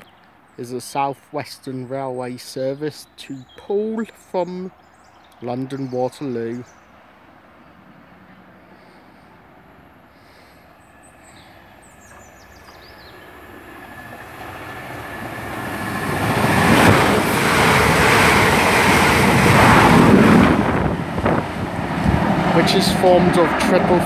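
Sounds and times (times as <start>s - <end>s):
train wheels rushing on rail: 10.3s - 24.0s.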